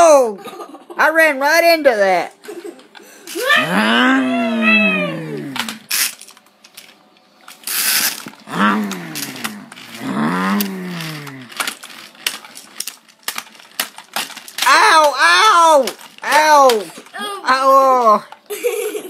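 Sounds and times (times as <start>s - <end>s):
person making vocal car noises: 3.4s - 5.9s, 8.4s - 11.6s
toy cars clicking and clacking: 5.5s - 19.0s.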